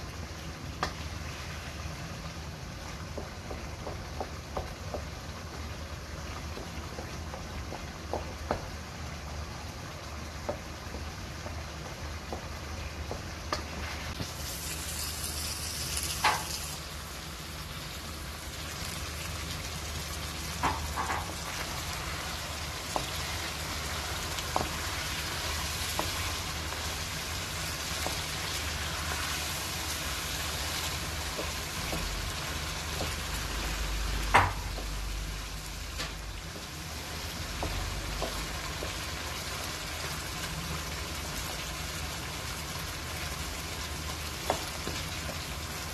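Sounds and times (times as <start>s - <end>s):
food sizzling in a wok: 0.0s - 45.9s
wooden spatula knocking pan: 24.4s - 26.4s.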